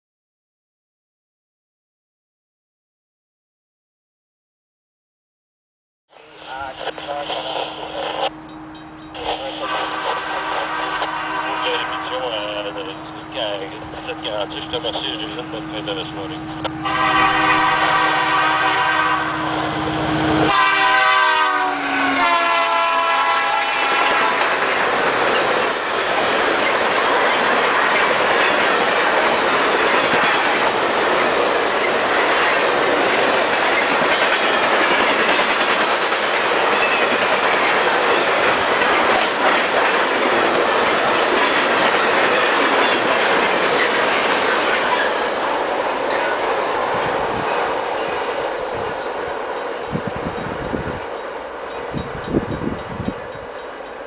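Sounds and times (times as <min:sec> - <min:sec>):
train cars rumbling on rails: 0:06.1 - 0:54.0
train air horn blasts: 0:08.3 - 0:14.4, 0:15.2 - 0:24.7.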